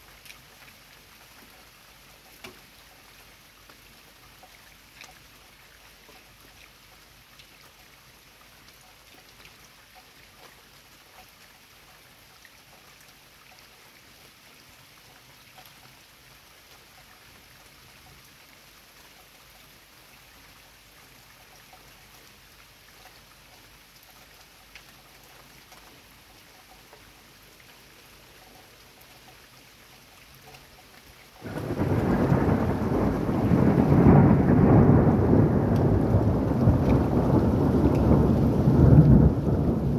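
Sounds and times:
light rain: 0.0 - 39.9
water drips ticking: 8.6 - 14.4, 20.7 - 34.0, 34.6 - 39.4
thunder clap rumbling: 31.4 - 39.9.

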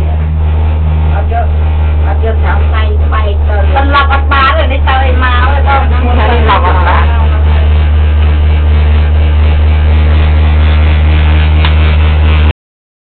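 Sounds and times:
cable car low hum: 0.0 - 12.5.

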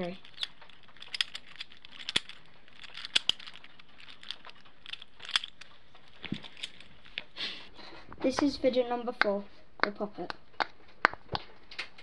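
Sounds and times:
plastic fidget toy clicking: 0.0 - 7.3.

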